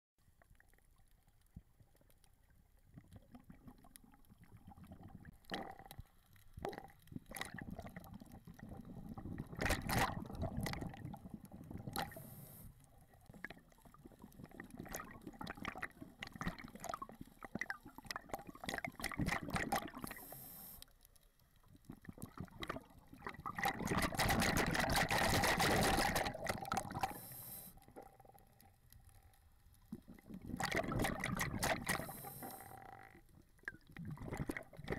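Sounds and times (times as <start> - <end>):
water bubbling and gurgling: 0.2 - 20.6, 21.6 - 34.9.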